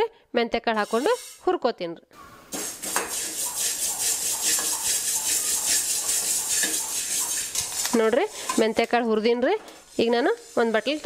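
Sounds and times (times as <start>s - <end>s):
seeds scraped in metal pan: 0.7s - 1.6s, 2.5s - 11.0s.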